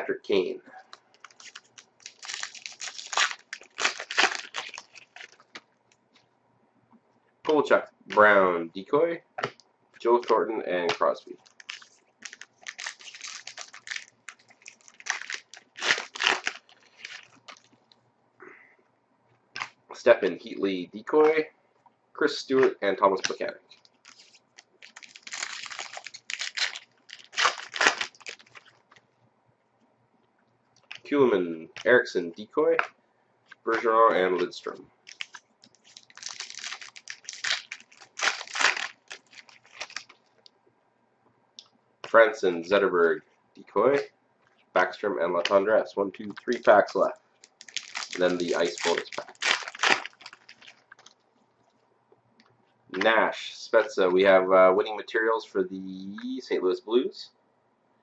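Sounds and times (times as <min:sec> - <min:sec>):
foil wrapper crinkling and tearing: 0:01.1 - 0:05.6, 0:11.4 - 0:17.8, 0:23.2 - 0:29.0, 0:35.1 - 0:40.3, 0:46.4 - 0:51.2
cards being handled: 0:46.4 - 0:51.1.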